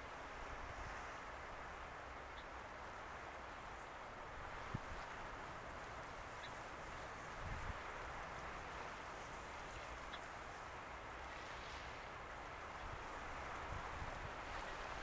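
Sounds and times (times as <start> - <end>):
choppy water washing: 3.0 - 15.0.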